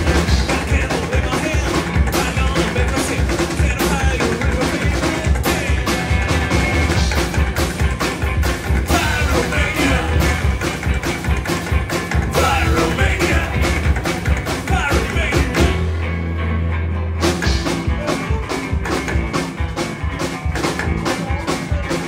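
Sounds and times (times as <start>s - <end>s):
drum hits: 0.0s - 16.0s
rock and roll band playing: 0.0s - 22.0s.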